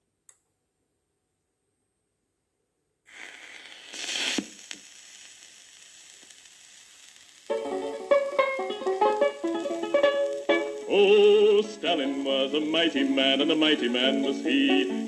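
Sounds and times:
record crackle and hiss: 3.0 - 15.0
plucked acoustic guitar: 7.6 - 15.0.

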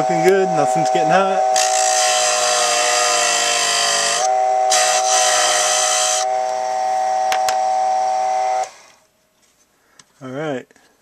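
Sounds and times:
electric motor whining: 0.0 - 9.0
gouge scraping spinning wood: 1.6 - 6.3.

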